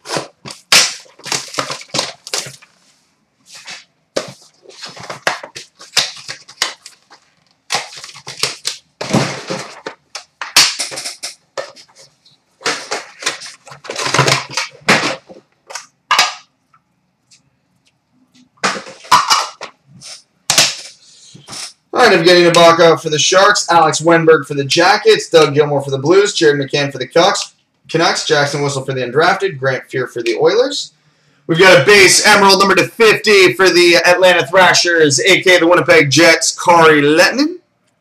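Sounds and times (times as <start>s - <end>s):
plastic wrap tearing and crinkling: 0.0s - 2.8s, 3.6s - 14.9s.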